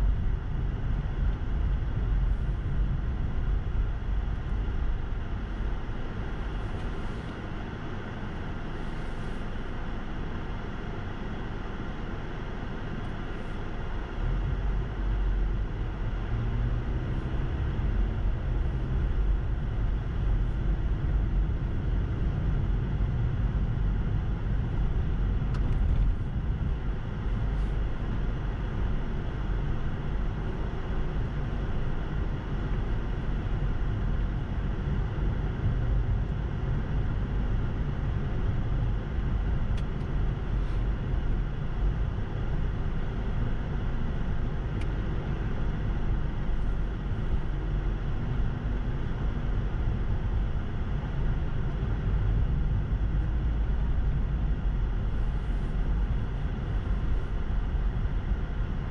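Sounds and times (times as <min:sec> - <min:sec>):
car engine and tyres rumble: 0:00.0 - 0:58.9.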